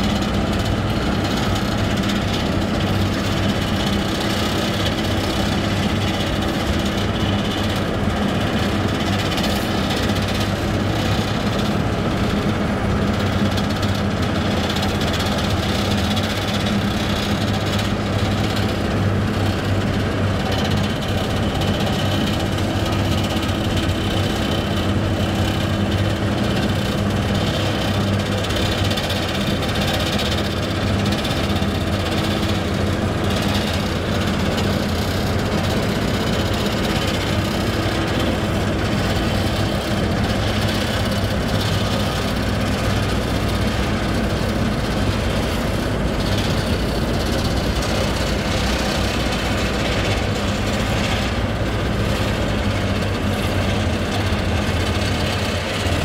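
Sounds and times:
diesel engine humming: 0:00.0 - 0:56.0.

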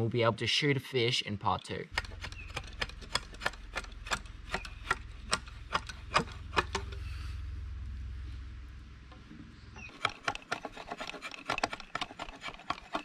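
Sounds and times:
low steady rumble: 0:01.9 - 0:09.9
knife shaving wood: 0:02.0 - 0:06.3, 0:09.9 - 0:13.0.

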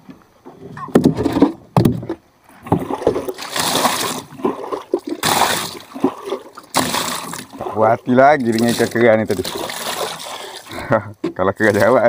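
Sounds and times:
water splashing around a boat: 0:02.4 - 0:12.0.

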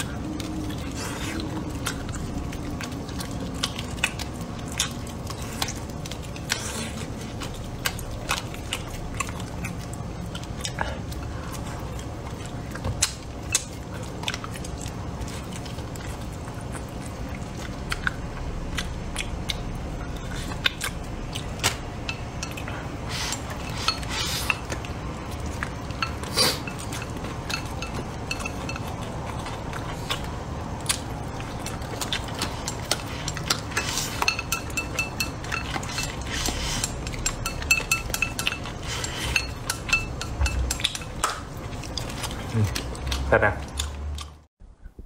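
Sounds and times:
chopsticks clinking on porcelain bowl: 0:25.8 - 0:29.5, 0:32.9 - 0:41.3
bowl ringing: 0:34.2 - 0:36.2, 0:37.2 - 0:40.8.

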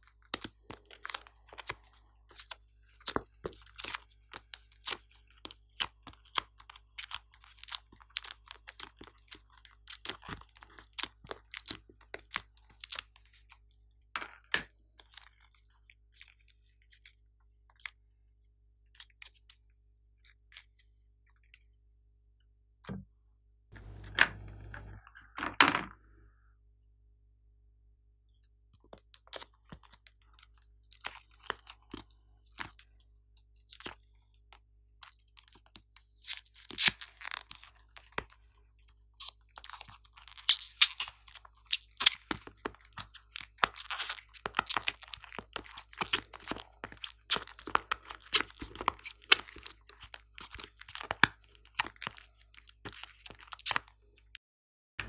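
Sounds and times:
crumbly makeup crackling: 0:37.5 - 0:54.4.

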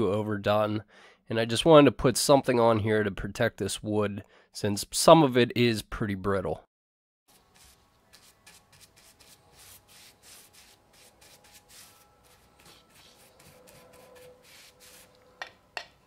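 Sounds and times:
brush swishing on wood: 0:07.3 - 0:15.4.

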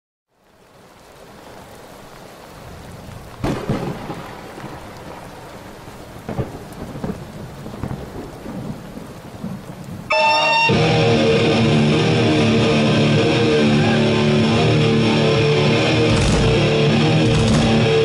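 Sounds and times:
steady rain: 0:00.3 - 0:18.0
thunder rumbling: 0:02.3 - 0:18.0
distorted electric guitar: 0:10.1 - 0:18.0.

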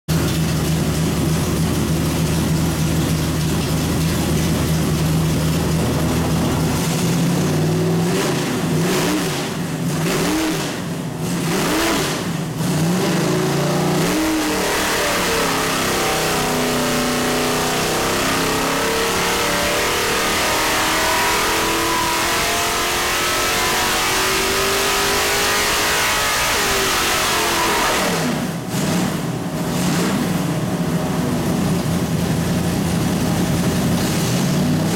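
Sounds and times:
car engine revving: 0:00.1 - 0:34.9.

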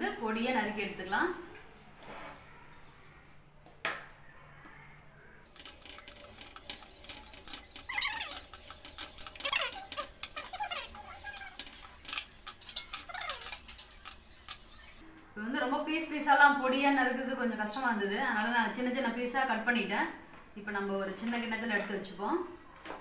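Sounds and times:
blade squeaking against plate: 0:05.6 - 0:15.0.

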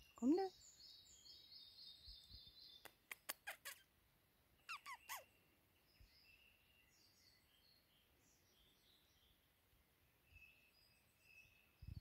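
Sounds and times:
faint bird song: 0:00.0 - 0:12.0
sharp lip squeaks: 0:02.8 - 0:03.9, 0:04.7 - 0:05.3.

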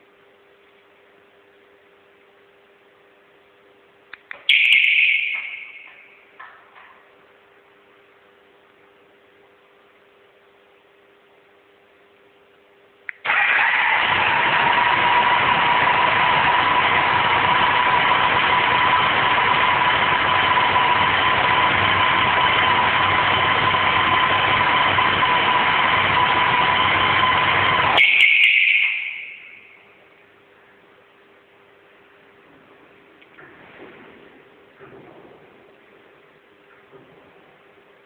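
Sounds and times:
short whine: 0:13.1 - 0:30.0
motorcycle engine running: 0:13.3 - 0:28.0.

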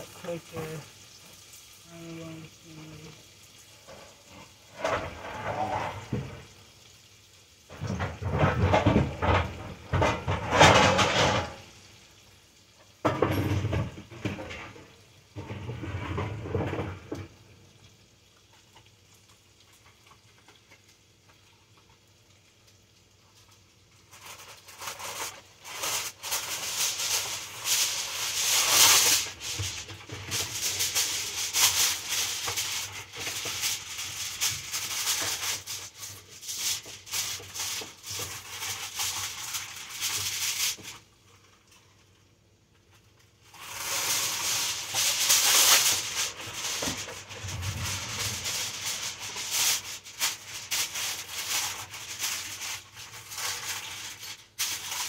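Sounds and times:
kitchen clattering and knocking: 0:03.8 - 0:06.5, 0:07.7 - 0:11.7, 0:13.0 - 0:17.4, 0:25.0 - 0:35.8, 0:43.6 - 0:52.5
rattling and rustling: 0:07.8 - 0:11.6, 0:43.7 - 0:55.0.

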